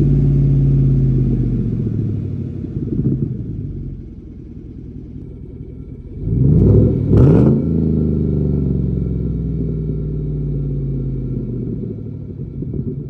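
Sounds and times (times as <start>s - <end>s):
truck engine idling: 0.0s - 6.4s
engine throttle blips: 0.0s - 13.0s.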